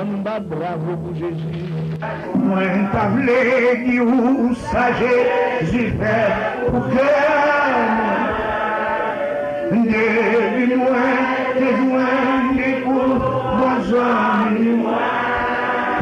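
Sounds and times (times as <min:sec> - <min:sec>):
man singing a hymn: 0:02.2 - 0:08.4, 0:09.6 - 0:15.0.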